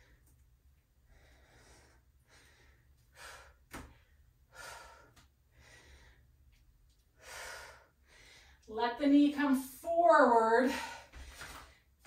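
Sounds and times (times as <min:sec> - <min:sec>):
woman breathing: 0:00.0 - 0:08.7.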